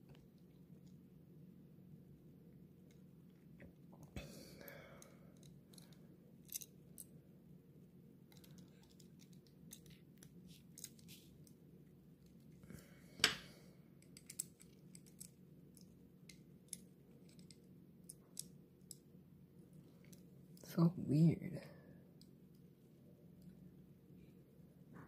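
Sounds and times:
small model car parts clicking: 5.0s - 7.1s, 8.3s - 11.6s, 14.0s - 19.0s.

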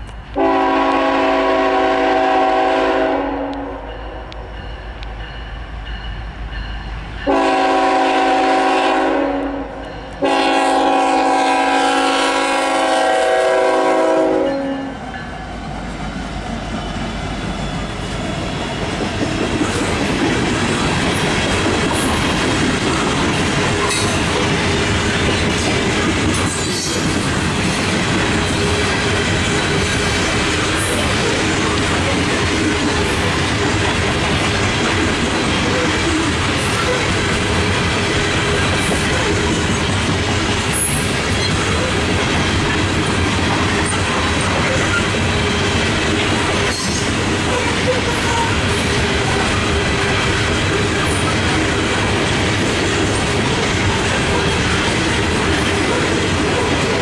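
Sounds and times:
train cars rumbling on rails: 0.0s - 57.0s
locomotive air horn blasts: 0.4s - 3.9s, 7.3s - 15.0s.

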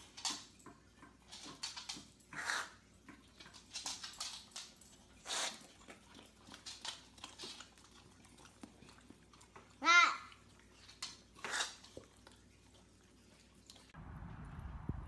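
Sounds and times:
dog licking and smacking lips: 3.0s - 13.9s.

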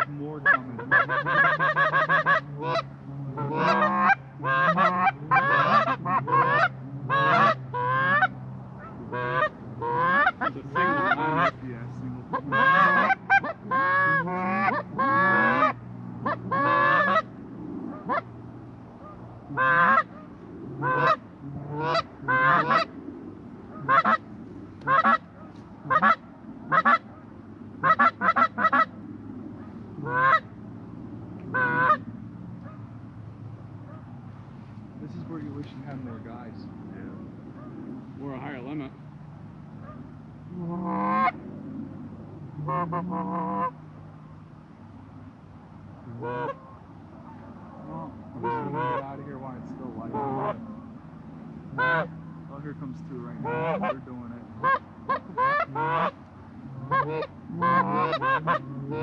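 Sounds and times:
geese honking: 0.0s - 17.3s, 19.0s - 22.9s, 23.7s - 27.2s, 27.8s - 28.9s, 30.0s - 30.5s, 31.5s - 32.1s, 39.8s - 41.4s, 42.6s - 43.8s, 46.1s - 50.6s, 51.7s - 56.2s, 56.8s - 59.0s.

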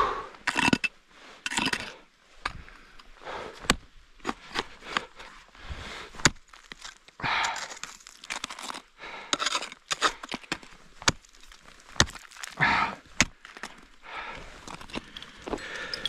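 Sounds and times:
hard breathing: 0.0s - 0.5s, 2.5s - 6.3s, 7.2s - 7.9s, 8.9s - 10.4s, 12.5s - 16.0s
ice axe picks striking ice: 6.2s - 13.8s.

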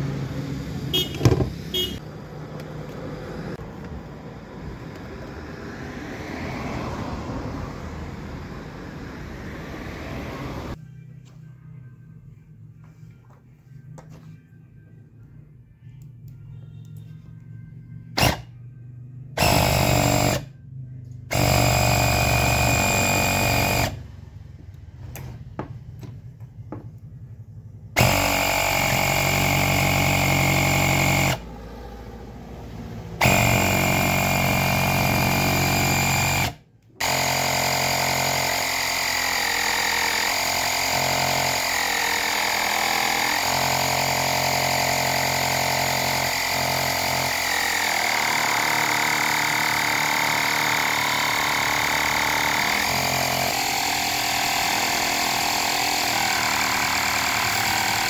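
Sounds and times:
electric air compressor running: 0.0s - 2.0s, 18.2s - 18.6s, 19.3s - 20.5s, 21.3s - 24.0s, 28.0s - 32.0s, 33.1s - 58.0s.

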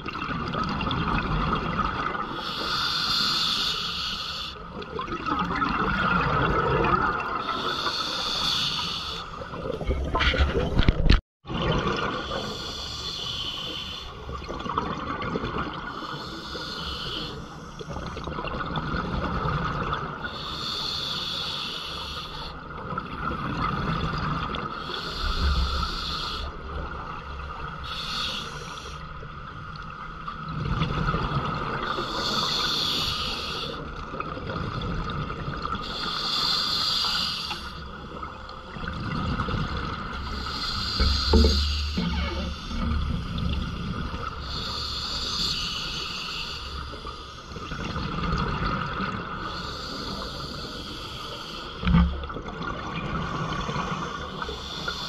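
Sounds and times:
steady underwater hiss: 2.1s - 4.8s, 7.2s - 9.6s, 12.0s - 14.5s, 15.7s - 18.4s, 20.0s - 55.0s
diver breathing through regulator: 2.4s - 4.6s, 7.5s - 9.4s, 12.2s - 14.3s, 15.9s - 18.0s, 20.3s - 22.6s, 24.8s - 26.6s, 27.8s - 29.0s, 31.9s - 33.9s, 35.8s - 38.0s, 40.1s - 47.7s, 49.4s - 52.2s, 53.7s - 55.0s.

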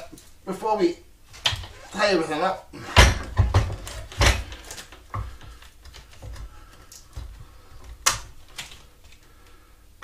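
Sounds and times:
knocks and clunks of hands working: 2.8s - 8.8s.

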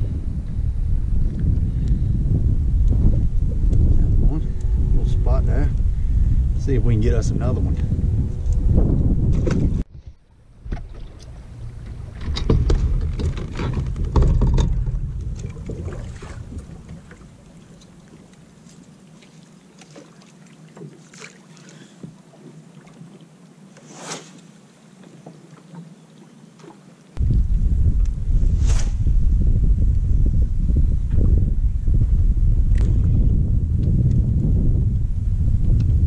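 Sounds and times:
wind noise on microphone: 0.0s - 17.6s, 27.2s - 36.0s
waves lapping against boat hull: 9.3s - 27.2s
fishing tackle knocks and clicks: 12.2s - 15.8s.

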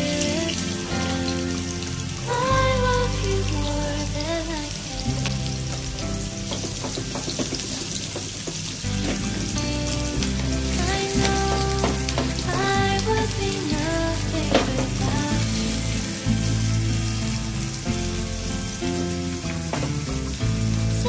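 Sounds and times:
background music: 0.0s - 21.0s
onions sizzling in hot oil: 4.8s - 21.0s.

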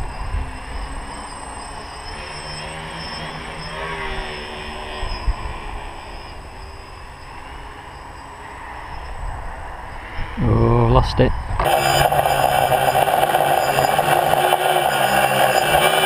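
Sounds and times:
drone motors buzzing: 0.0s - 8.2s, 11.6s - 16.0s
wind rumble on microphone: 8.8s - 11.6s.

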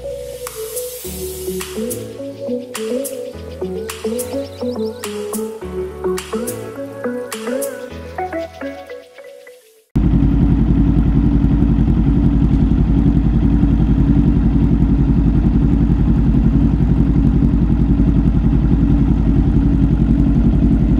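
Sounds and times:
motorcycle engine idling: 10.0s - 20.9s.

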